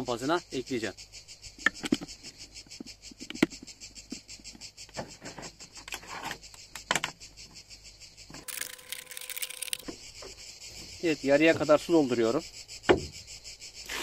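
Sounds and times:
insects chirping: 0.0s - 14.0s
plastic bottle crinkling: 8.4s - 9.8s.

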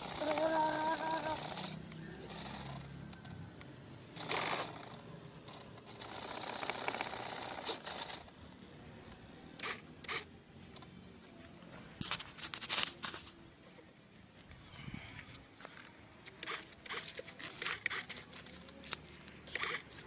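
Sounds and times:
servos whirring: 0.0s - 8.5s, 9.6s - 10.4s, 16.2s - 20.0s
sharp clicks: 5.6s - 8.2s, 9.6s - 10.9s, 16.2s - 20.0s.

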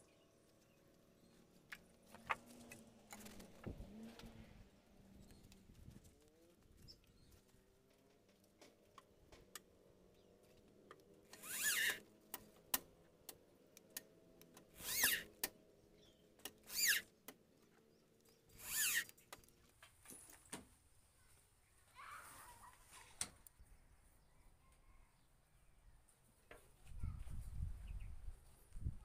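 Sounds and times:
cordless drill motor whirring: 11.3s - 12.0s, 14.7s - 15.5s, 16.5s - 17.2s, 18.5s - 19.2s.

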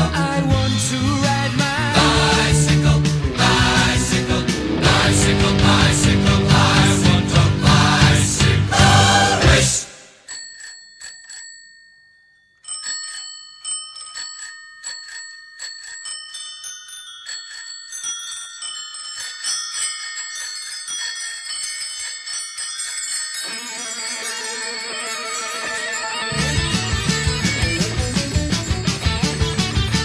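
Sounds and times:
bicycle bells ringing: 10.2s - 30.0s.

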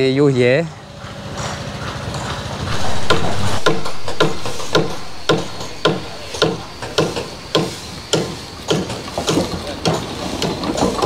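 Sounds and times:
rhythmic knocking thuds: 2.5s - 10.0s.

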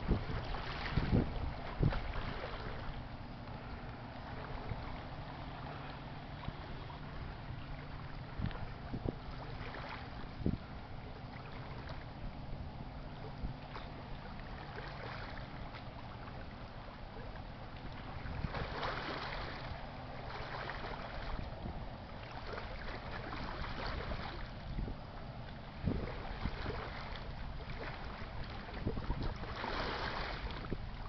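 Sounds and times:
wind on microphone: 0.0s - 3.0s, 6.4s - 10.8s, 17.8s - 19.8s, 21.0s - 22.0s, 22.7s - 31.0s
ship engine drone: 0.0s - 31.0s.

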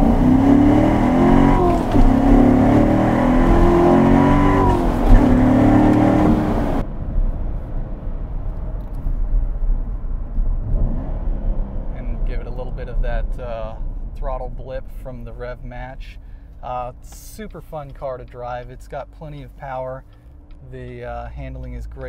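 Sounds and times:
sports car engine revving: 0.0s - 6.9s, 10.4s - 13.0s.

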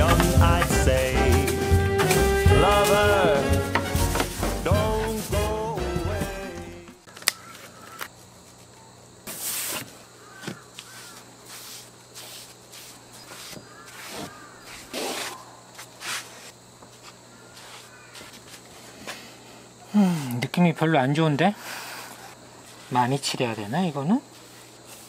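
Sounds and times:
birds calling: 7.0s - 9.0s, 10.0s - 11.4s, 13.0s - 15.8s, 17.2s - 18.7s.

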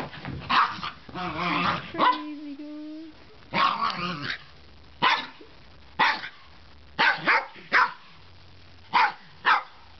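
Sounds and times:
small dog barking: 0.5s - 2.3s, 3.5s - 5.4s, 6.0s - 8.2s, 8.9s - 9.9s.

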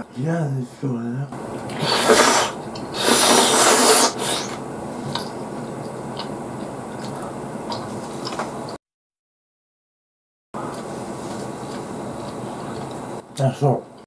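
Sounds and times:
mouth eating sounds: 1.6s - 8.4s
loud noisy burst: 1.7s - 4.6s.

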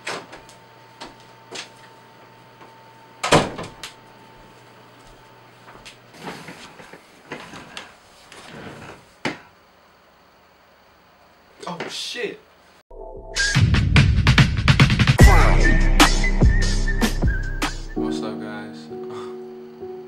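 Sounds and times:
door banging shut: 3.2s - 3.8s
shuffling and small knocks: 4.5s - 9.5s.

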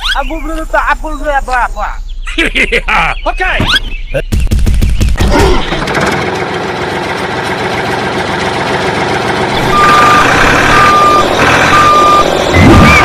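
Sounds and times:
mechanical running noise: 9.0s - 13.0s
reversing alarm beeping: 9.6s - 13.0s.

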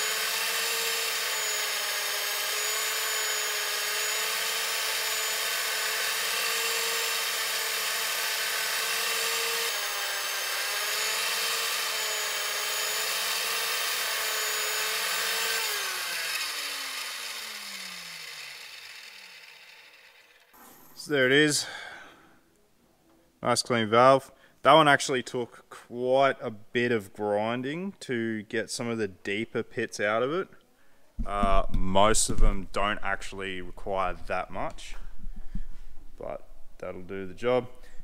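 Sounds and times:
grinding wheel motor whine: 0.0s - 20.5s.

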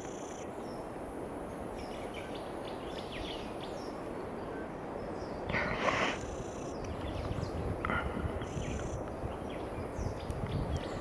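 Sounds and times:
outdoor background hiss: 0.0s - 11.0s
rush of noise: 0.4s - 9.1s.

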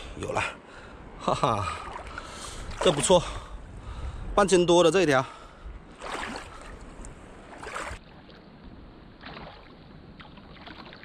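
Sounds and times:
seawater sloshing: 1.6s - 3.5s, 5.8s - 8.5s, 9.2s - 11.0s.

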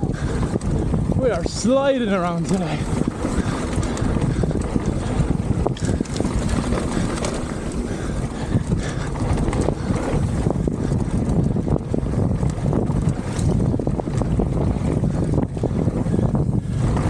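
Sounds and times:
bike tyres rolling on gravel: 0.0s - 17.0s
wind buffeting microphone: 0.0s - 17.0s
bike and stones knocking: 2.4s - 11.5s.

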